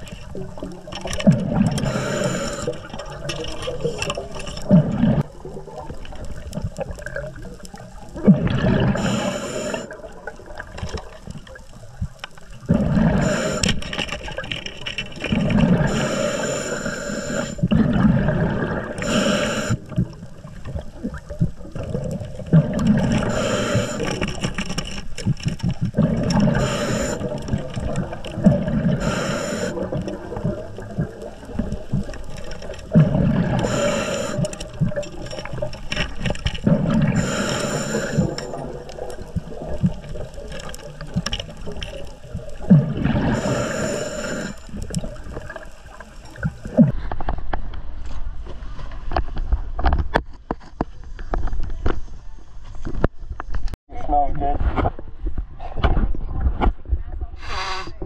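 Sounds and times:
gurgling exhaled bubbles: 0.0 - 47.0
regulator hissing inhale: 1.7 - 3.1, 8.8 - 10.0, 13.0 - 14.2, 15.8 - 17.7, 19.0 - 20.0, 23.0 - 24.6, 26.3 - 27.7, 28.8 - 30.4, 33.0 - 35.4, 36.9 - 38.8, 43.2 - 45.4, 57.4 - 58.0.

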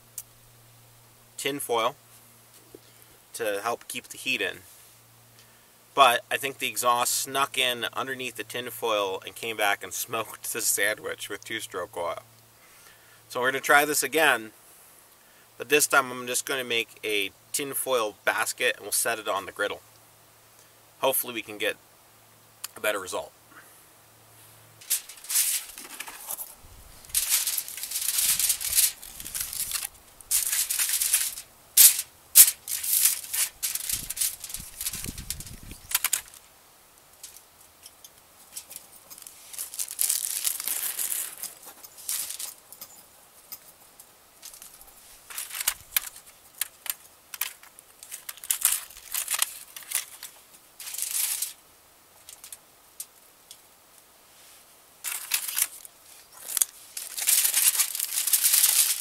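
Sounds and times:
aluminium foil crinkling: 24.8 - 36.5, 37.1 - 43.6, 44.4 - 51.6, 52.2 - 53.2, 55.0 - 59.0.

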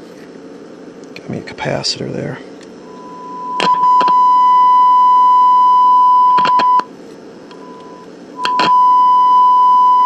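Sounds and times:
steady test tone: 2.8 - 6.9.

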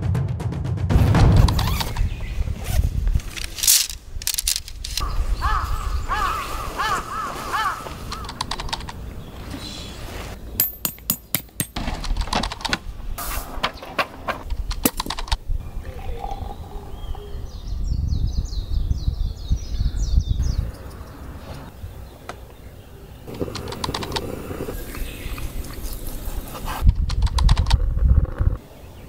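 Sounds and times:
crow cawing: 5.0 - 8.4.

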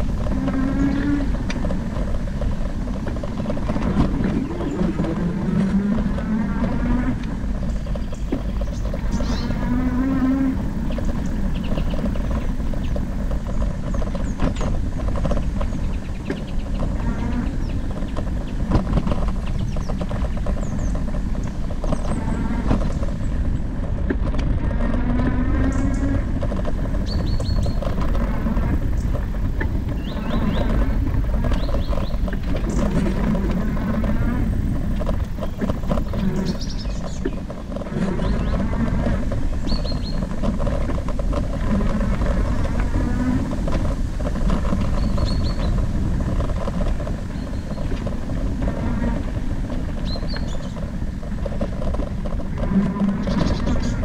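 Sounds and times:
faint whine: 0.0 - 54.0
wind and tyre riding noise: 0.0 - 54.0
bird chirping: 3.3 - 6.2, 6.8 - 23.4, 26.9 - 38.8, 39.5 - 40.6, 44.6 - 45.8, 49.9 - 50.9, 53.0 - 54.0.

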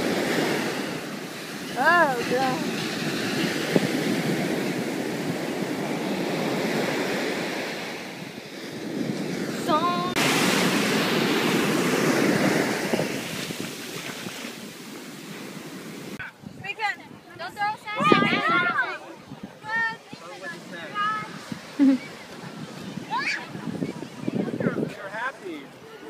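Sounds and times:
ocean surf washing over sand: 0.0 - 16.2, 17.7 - 26.0
wind on microphone: 0.0 - 26.0.

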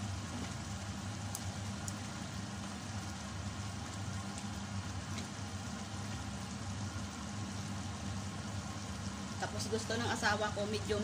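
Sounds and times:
sauce simmering and bubbling: 0.0 - 10.9
light ticks and pops: 1.3 - 2.0.

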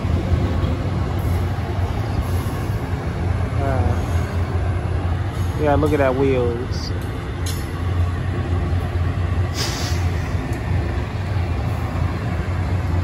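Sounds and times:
freight train wheels rumbling: 0.0 - 13.0
brief hiss: 9.5 - 10.4.

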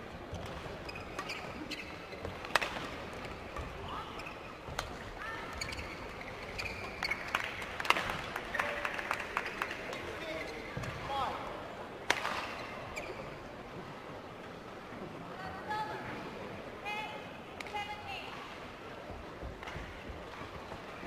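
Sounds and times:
short squeaks: 0.8 - 2.1, 5.4 - 7.4, 12.6 - 13.4.

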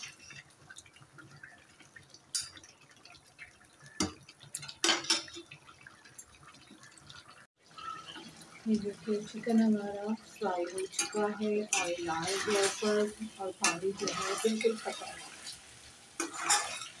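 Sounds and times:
faint bubbling of simmering food: 0.0 - 17.0
metal spatula scraping a steel pan: 10.8 - 15.4, 16.2 - 17.0.

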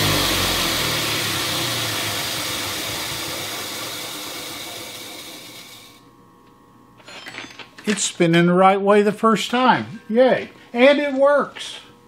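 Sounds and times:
grinder whirring down: 0.0 - 6.0.

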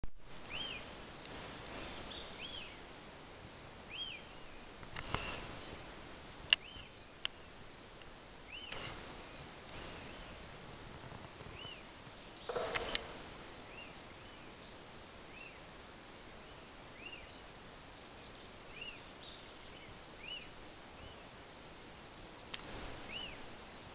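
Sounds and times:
woodpecker sharp knocks: 12.5 - 13.8.

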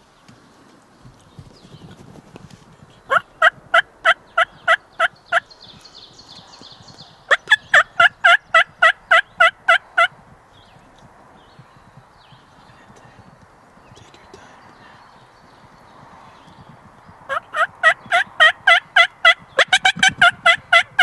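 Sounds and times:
wild turkey yelping: 3.1 - 5.5, 7.3 - 10.1, 17.3 - 21.0.

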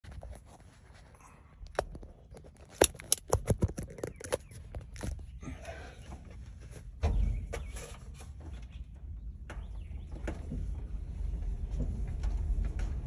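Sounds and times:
car rolling with clicks and rattles: 0.0 - 5.4, 6.3 - 13.0
low rumble: 9.0 - 13.0.

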